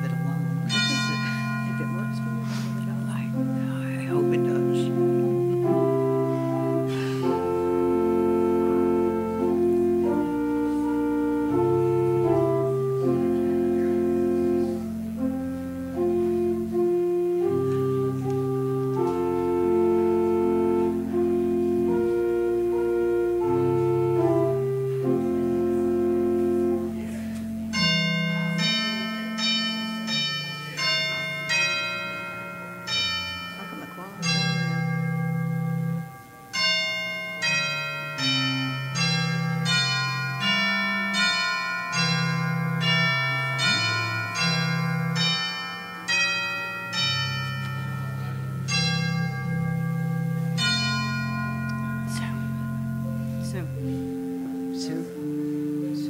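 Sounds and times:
bell-like chimes: 0:00.0 - 0:04.5, 0:27.7 - 0:54.0
church organ chords: 0:00.0 - 0:56.0.

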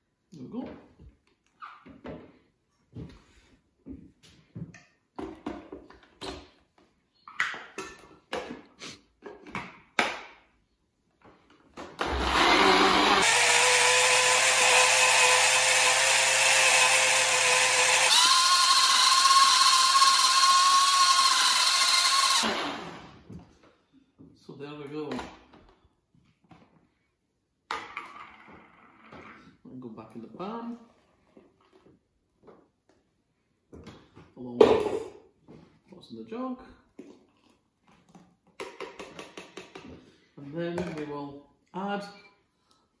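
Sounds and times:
blender motor running: 0:12.0 - 0:23.2.

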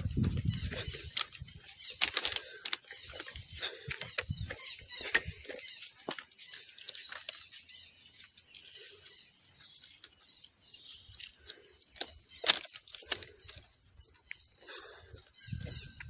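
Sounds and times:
footsteps crunching on ballast: 0:00.0 - 0:16.0
insects droning: 0:00.0 - 0:16.0.

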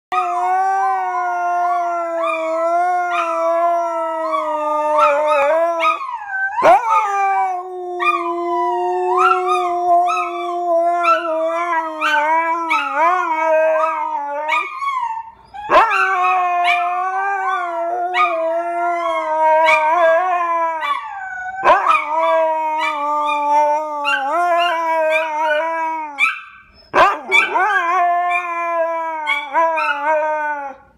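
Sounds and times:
dogs howling: 0:00.1 - 0:30.9.

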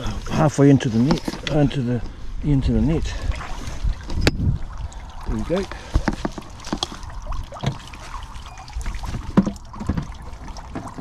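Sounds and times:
water sloshing: 0:03.0 - 0:11.0
net knocks and clunks: 0:09.0 - 0:11.0.

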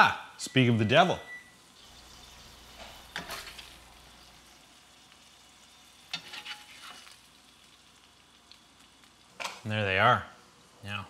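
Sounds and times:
grease sizzling in frying pan: 0:01.6 - 0:11.0
spatula scraping pan: 0:02.1 - 0:03.8, 0:06.0 - 0:07.2.

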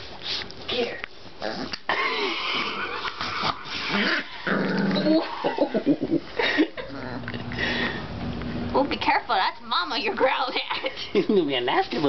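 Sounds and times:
puppy growling: 0:01.4 - 0:07.6.

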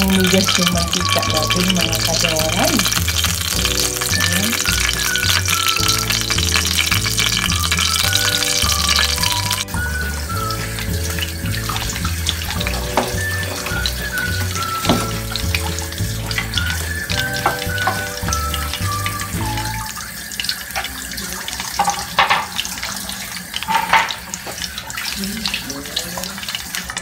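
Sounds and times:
background music: 0:00.0 - 0:20.3
oil sizzling in a wok: 0:00.0 - 0:27.0.

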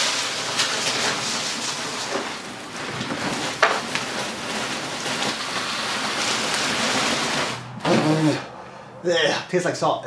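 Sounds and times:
salt crystals pouring: 0:00.0 - 0:07.7.

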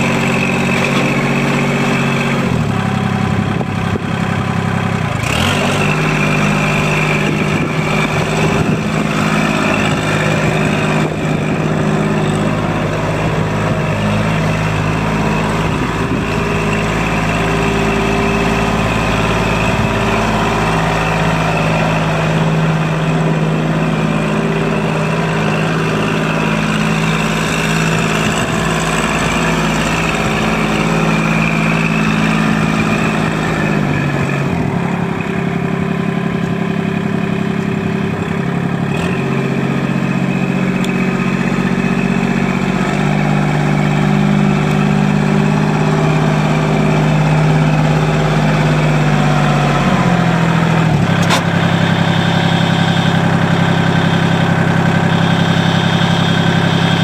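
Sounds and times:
diesel tractor engine running: 0:00.0 - 0:57.0
sharp click: 0:51.2 - 0:51.5.

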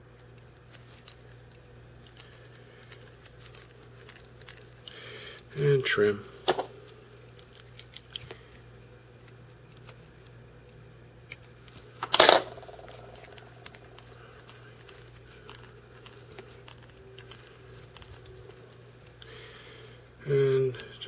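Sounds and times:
metal tools clicking and clinking: 0:00.1 - 0:04.9, 0:11.3 - 0:19.2.

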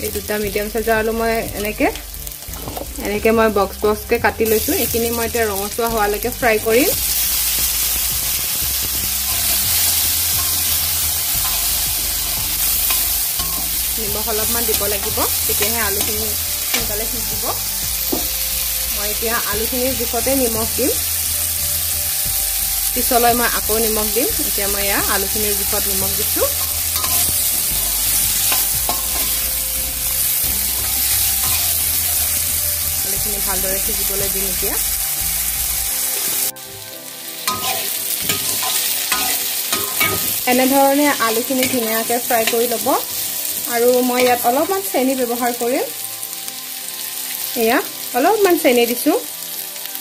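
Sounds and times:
potatoes sizzling in hot oil: 0:00.0 - 0:50.0
steel spoon scraping metal pan: 0:08.8 - 0:16.9, 0:24.8 - 0:29.6, 0:30.2 - 0:32.4, 0:37.4 - 0:43.4
spatula scraping pan: 0:26.5 - 0:29.5, 0:37.5 - 0:40.4.

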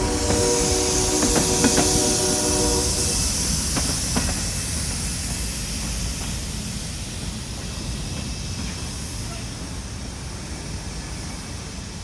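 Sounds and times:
freight train rolling: 0:00.0 - 0:12.0.

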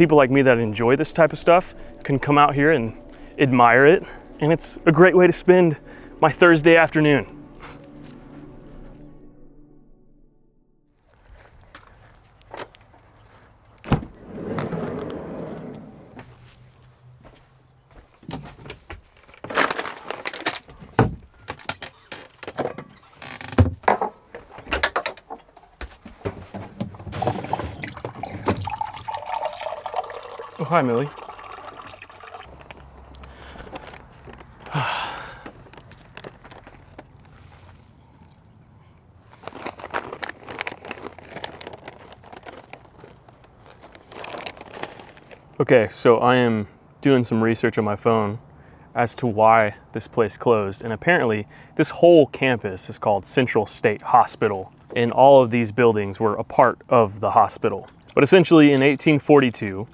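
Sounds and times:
plastic snack bag crinkling: 0:35.5 - 0:38.6, 0:39.2 - 0:45.6
clatter of handled things: 0:39.3 - 0:45.5.

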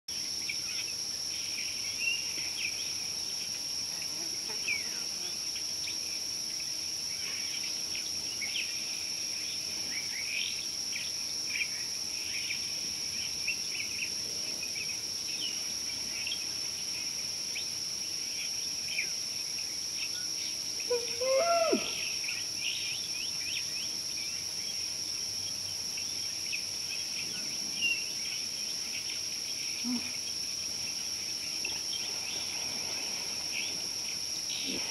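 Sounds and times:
high insect drone: 0:00.1 - 0:34.9.

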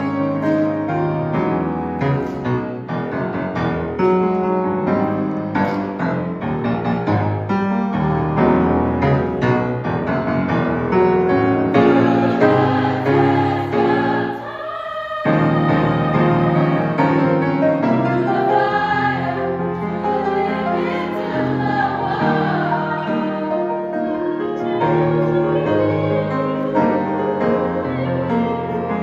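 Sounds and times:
grand piano accompaniment: 0:00.0 - 0:29.0
youth choir singing: 0:11.6 - 0:29.0.

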